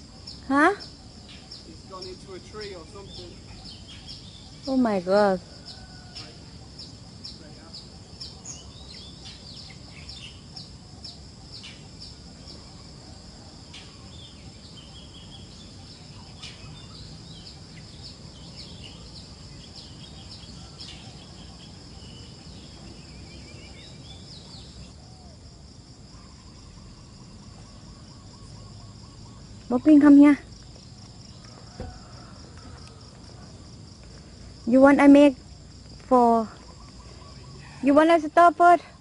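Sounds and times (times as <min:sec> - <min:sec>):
bird chirps: 0:00.0 - 0:25.4, 0:36.3 - 0:38.4
insects trilling: 0:00.0 - 0:39.0.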